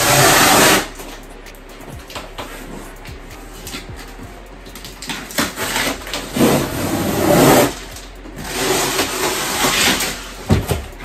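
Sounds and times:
packing tape ripping: 4.7s - 10.8s.

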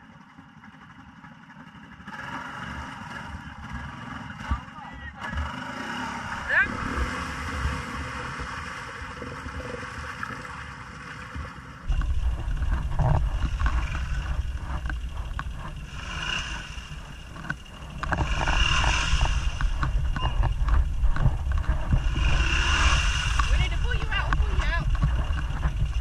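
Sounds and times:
atv engine running: 0.0s - 26.0s
wind buffeting microphone: 11.8s - 26.0s.

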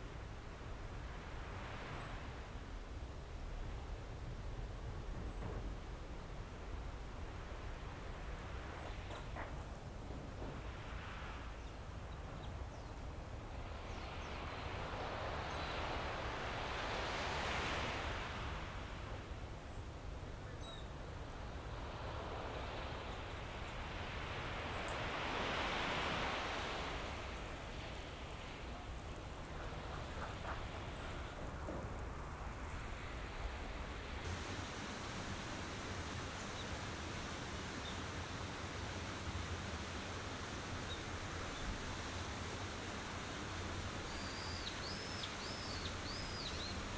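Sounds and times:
rush of waves: 0.0s - 46.9s
even hiss: 12.8s - 46.9s.

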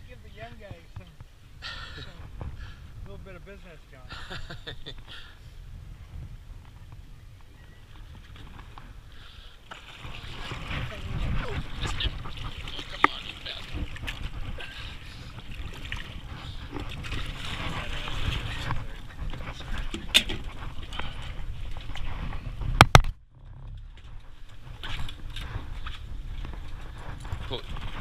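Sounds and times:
wind noise: 0.0s - 28.0s
water sloshing: 7.9s - 22.8s.

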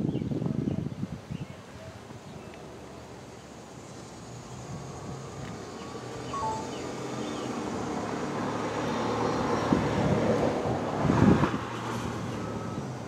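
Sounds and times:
road vehicle passing: 2.7s - 13.0s.

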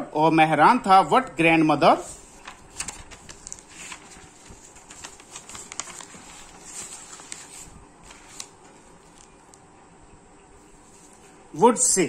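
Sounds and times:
pages turning and rustling: 2.0s - 9.6s, 10.8s - 11.4s.

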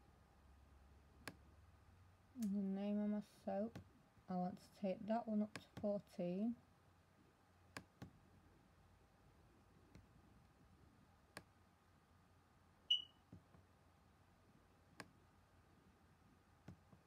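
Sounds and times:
short high beep: 12.9s - 13.2s.

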